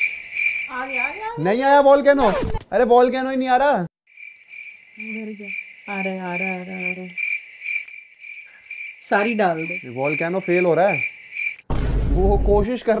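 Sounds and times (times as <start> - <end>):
cricket chirping: 0.0 - 1.5, 4.1 - 11.6.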